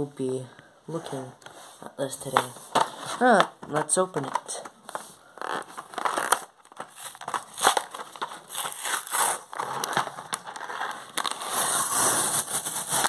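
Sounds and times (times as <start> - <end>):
plastic blister crackling: 2.2 - 13.0
cardboard ripping: 5.4 - 13.0.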